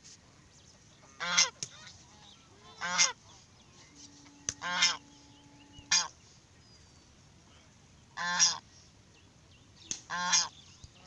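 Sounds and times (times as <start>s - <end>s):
geese honking: 1.0s - 6.2s, 8.2s - 8.6s, 10.1s - 10.6s.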